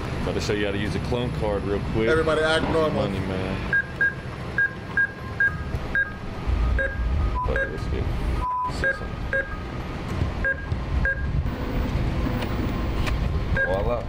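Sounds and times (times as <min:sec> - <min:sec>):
keypad beeps: 0:03.7 - 0:06.2, 0:06.8 - 0:07.8, 0:08.4 - 0:09.6, 0:10.4 - 0:11.4, 0:13.6 - 0:13.8
low rumble: 0:05.8 - 0:08.5.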